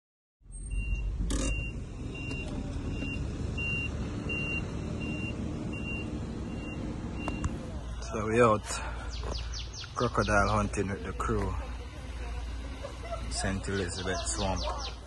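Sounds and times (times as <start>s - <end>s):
vehicle engine rumble: 0.4s - 15.0s
vehicle warning beeper: 0.5s - 7.6s.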